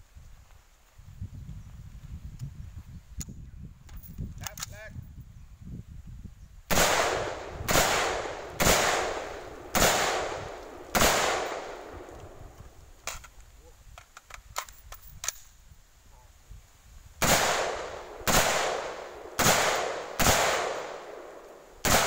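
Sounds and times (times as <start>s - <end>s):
rifle shots with echo: 6.7s - 12.5s, 17.2s - 22.0s.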